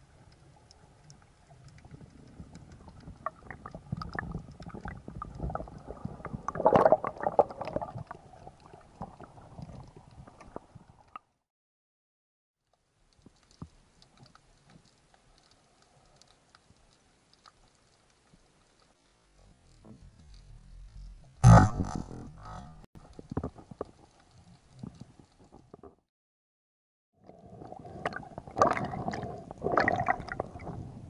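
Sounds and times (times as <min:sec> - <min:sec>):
underwater rumbling and clicking: 0:00.0 - 0:11.4, 0:12.8 - 0:26.0, 0:27.2 - 0:31.0.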